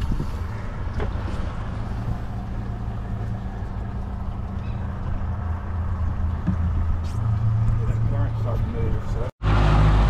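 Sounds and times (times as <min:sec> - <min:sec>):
motorboat engine running: 0:00.0 - 0:10.0.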